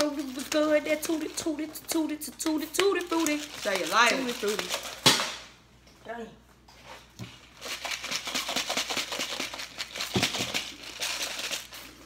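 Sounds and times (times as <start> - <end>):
plastic packet crinkling: 0.0 - 5.1, 7.5 - 12.0.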